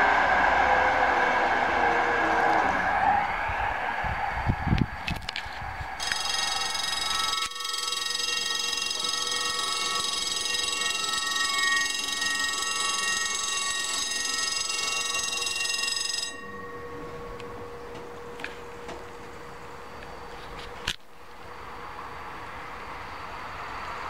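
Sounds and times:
level crossing bell ringing: 6.0 - 17.8.

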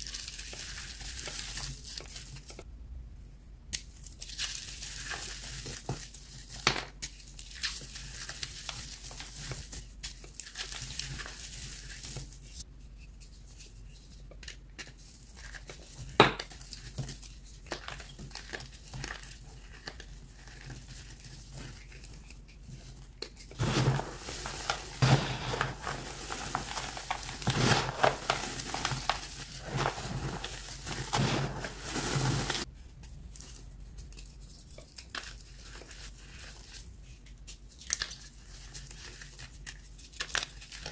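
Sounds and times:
chalk crumbling by hand: 4.2 - 40.9
chalk crunching: 19.0 - 32.7.

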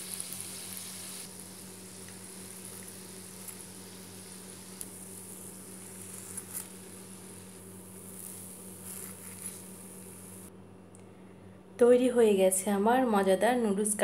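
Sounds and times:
frying oil sizzling: 0.0 - 10.5.

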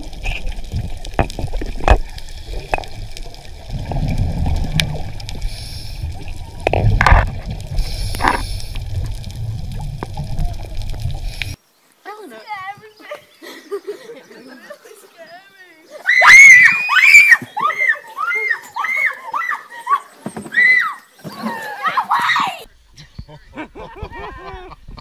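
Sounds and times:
gurgling bubbles: 0.0 - 11.6
low rumbling underwater noise: 0.0 - 11.6.

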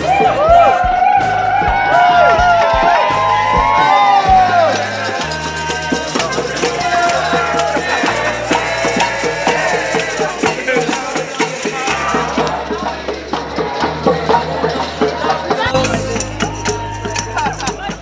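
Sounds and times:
tambourines jingling: 1.4 - 18.0
dance music: 15.6 - 18.0.

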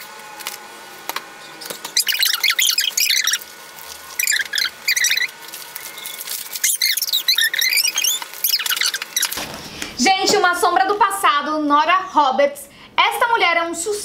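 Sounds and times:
sped-up paper handling: 0.4 - 9.8
sped-up squeaky voice: 2.0 - 3.4, 4.2 - 5.3, 6.6 - 9.3.

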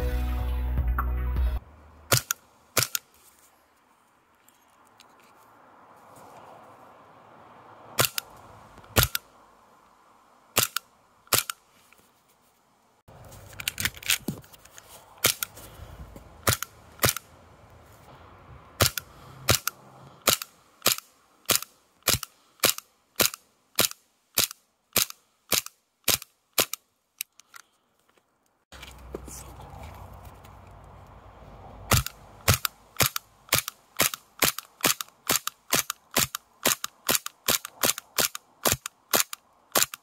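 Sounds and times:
airsoft pistol shots: 18.8 - 26.8.

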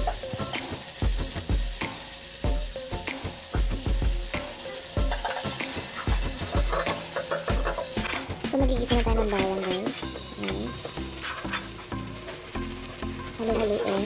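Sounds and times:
margarine sizzling in a pot: 0.0 - 14.0.

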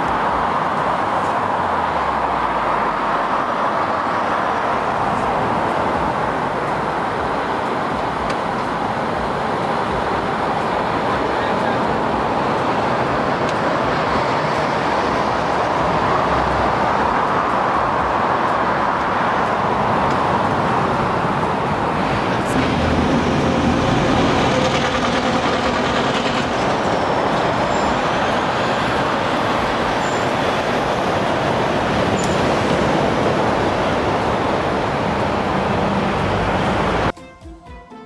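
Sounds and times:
street traffic noise: 0.0 - 38.0.

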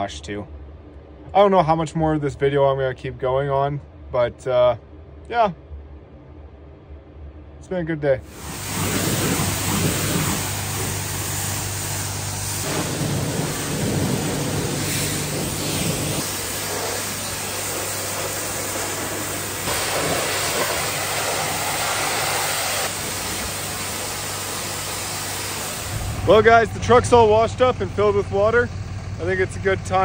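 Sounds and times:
low steady hum: 0.0 - 30.0
pressure washer spraying water: 8.3 - 26.4.

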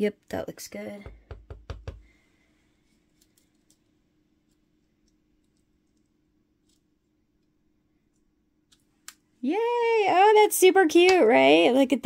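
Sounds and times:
stamp block knocking on ink pad: 1.0 - 2.0.

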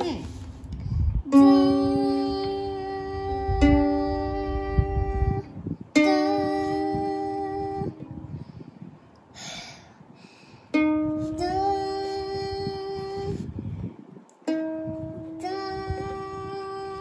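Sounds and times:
ukulele string plucked: 0.0 - 8.3, 10.7 - 12.3, 14.5 - 16.2.

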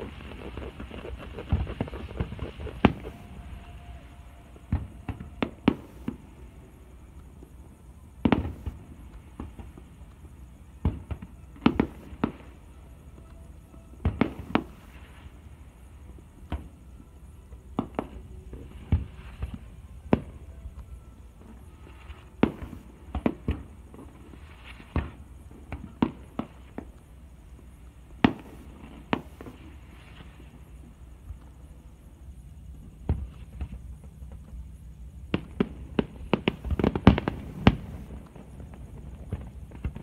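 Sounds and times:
firework shells bursting: 0.0 - 6.2.

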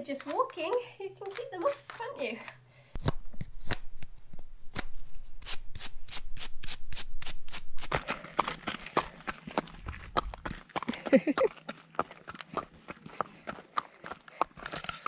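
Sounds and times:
hoof pick scraping and brushing: 0.0 - 2.3, 4.9 - 10.8, 11.7 - 15.0
horse footfalls: 7.8 - 11.4.

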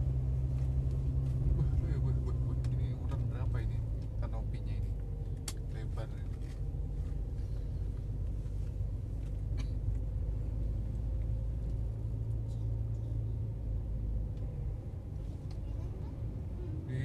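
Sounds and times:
car engine and tyre noise: 0.0 - 17.0.

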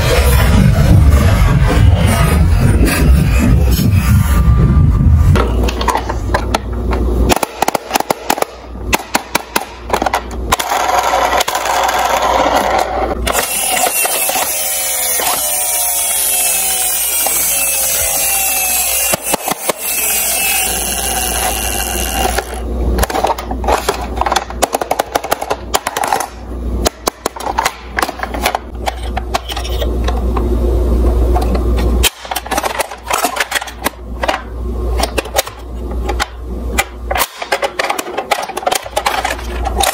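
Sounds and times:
toy motor whir winding down: 10.7 - 22.6.

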